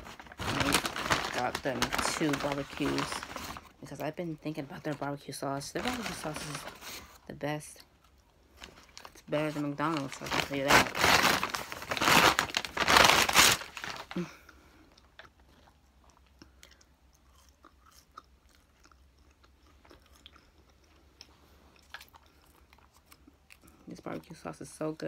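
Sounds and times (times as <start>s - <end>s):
paper wrapper crinkling: 0.0s - 7.2s, 8.5s - 14.4s
close-up chewing: 14.0s - 24.0s.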